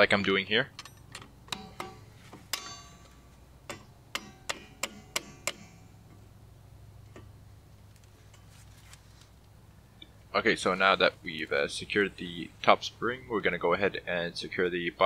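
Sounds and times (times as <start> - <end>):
sharp metallic clicks of pliers: 0.7 - 5.9.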